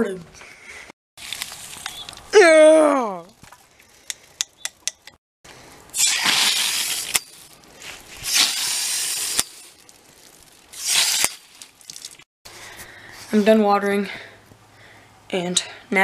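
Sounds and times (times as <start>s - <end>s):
hose nozzle spraying water: 5.9s - 7.5s, 8.2s - 12.2s.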